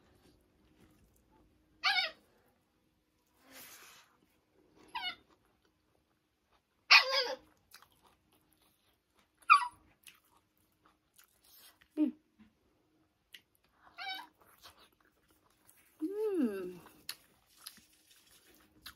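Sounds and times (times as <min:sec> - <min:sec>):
puppy whining: 0:01.8 - 0:02.4, 0:04.8 - 0:05.4, 0:06.9 - 0:07.5, 0:09.4 - 0:09.9, 0:13.8 - 0:14.8.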